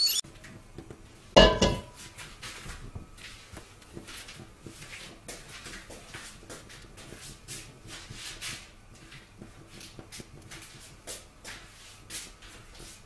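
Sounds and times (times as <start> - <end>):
metal pot clanking: 1.4 - 2.0.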